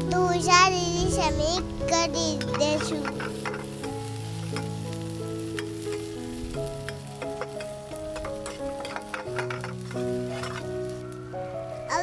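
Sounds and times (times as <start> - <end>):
background music with chords: 0.0 - 12.0
vegetables sizzling in oil: 0.0 - 12.0
ladle scraping pan: 7.3 - 10.7.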